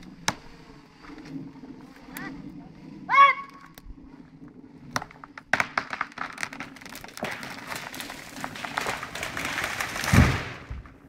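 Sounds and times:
wood cracking and snapping: 5.0s - 11.0s
branches rushing down: 6.4s - 11.0s.

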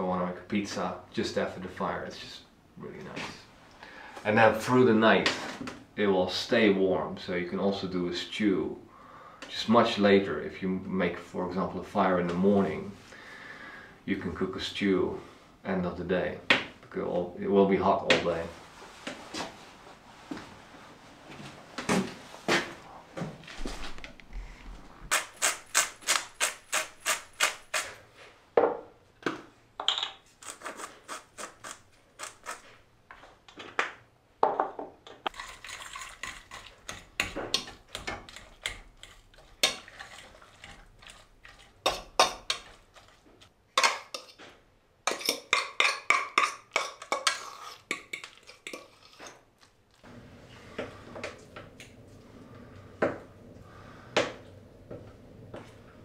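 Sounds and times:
spoon stirring and scraping pot: 30.3s - 32.8s, 35.3s - 51.4s
metal pot and utensils clattering: 45.1s - 49.4s.

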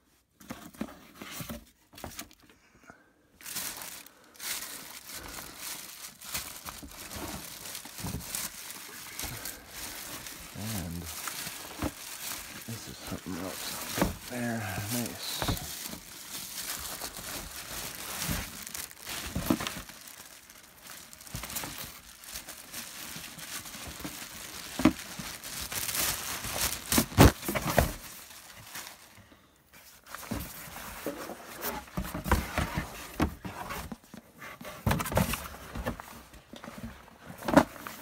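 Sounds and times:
packaging crinkling and rustling: 3.4s - 38.0s
cardboard ripping: 5.8s - 28.2s.

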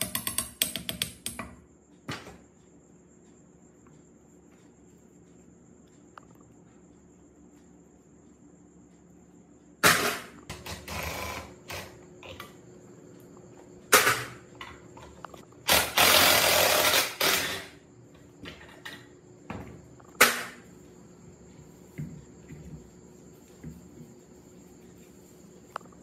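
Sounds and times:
knocks and clatters on metal pump: 0.0s - 2.4s.

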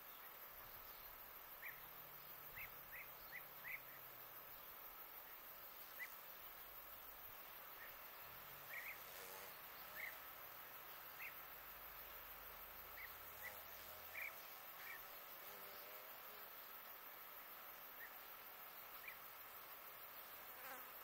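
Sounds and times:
faint bird chirps: 0.0s - 20.8s.

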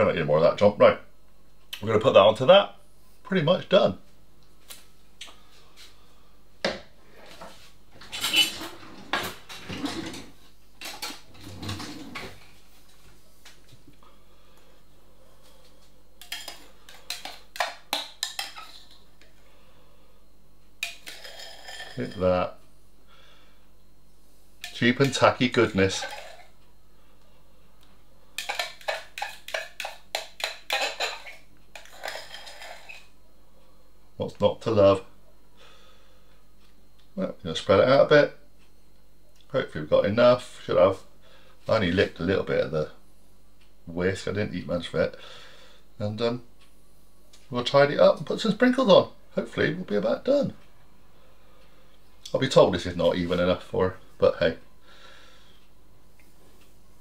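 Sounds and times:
spatula scraping a mixing bowl: 28.4s - 33.1s.

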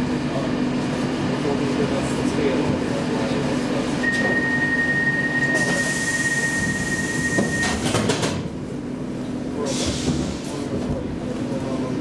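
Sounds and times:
door-closing warning beep: 4.0s - 7.9s.

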